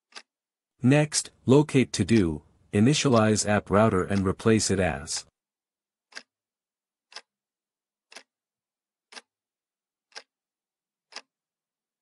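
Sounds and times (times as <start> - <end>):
clock ticking: 0.0 - 5.3, 6.1 - 6.3, 7.1 - 7.3, 8.0 - 8.4, 9.1 - 9.3, 10.1 - 10.3, 11.1 - 11.4.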